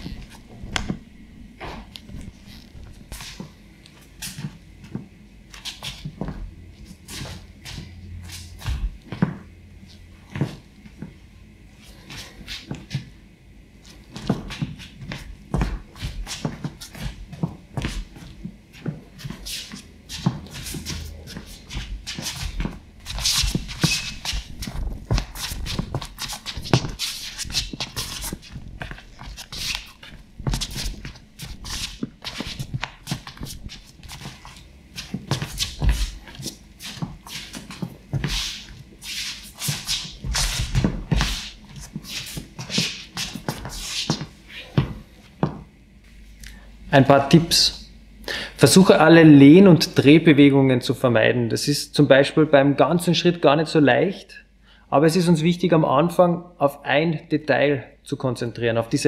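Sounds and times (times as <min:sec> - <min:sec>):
footsteps on wooden floor: 0:00.0 - 0:03.6, 0:04.3 - 0:06.5, 0:08.5 - 0:09.4, 0:13.8 - 0:45.8
shoe sole squeak: 0:23.7 - 0:24.4.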